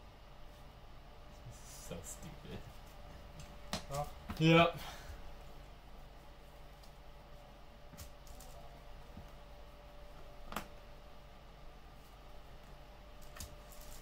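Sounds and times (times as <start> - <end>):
faint room hum: 0.0 - 14.0.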